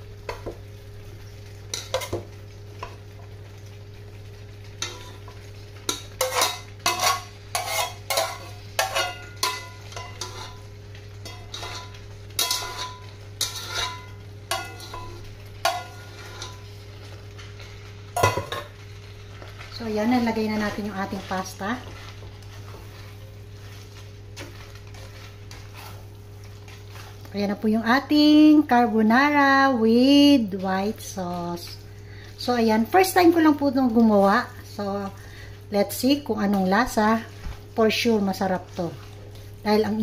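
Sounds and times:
steady low hum: 0.0 - 40.0
spatula scraping and knocking pan: 4.8 - 16.7, 20.6 - 27.3.

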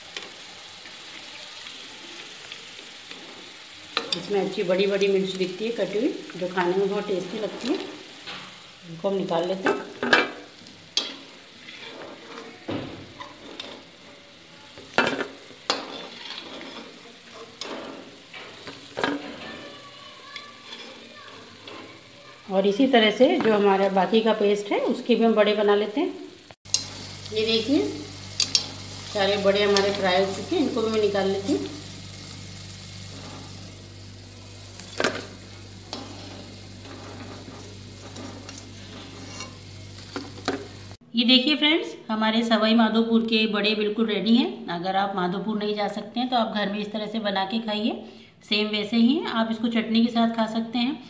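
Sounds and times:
food sizzling in hot oil: 0.0 - 41.0
metal spoon scraping a pan: 0.1 - 8.6, 9.5 - 24.4, 26.7 - 33.8, 34.6 - 40.8.

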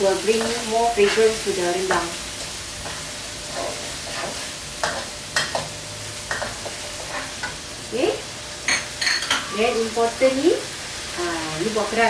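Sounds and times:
spice paste sizzling in a wok: 0.0 - 12.0
spatula scraping and knocking pan: 2.8 - 7.7.

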